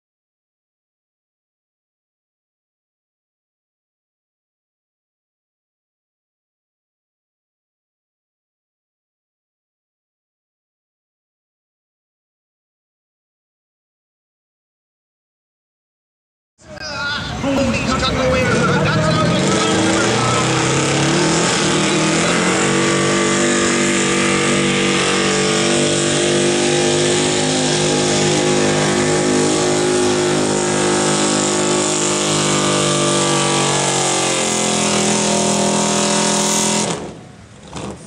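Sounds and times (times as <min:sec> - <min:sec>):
pickup engine at high revs: 0:17.5 - 0:38.0.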